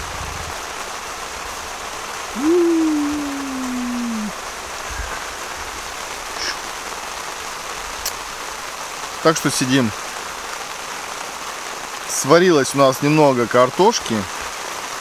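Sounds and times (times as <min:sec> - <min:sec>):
steady rain falling: 0:00.0 - 0:15.0
hum-like voice sliding down: 0:02.4 - 0:04.4.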